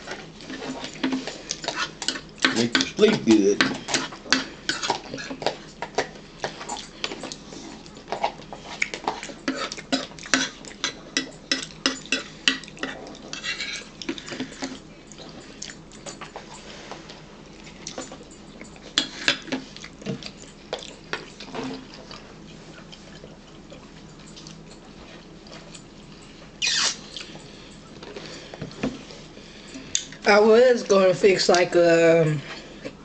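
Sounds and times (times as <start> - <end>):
spoon scraping a bowl: 0.5 - 5.5, 8.6 - 14.8
chewing: 3.7 - 30.2.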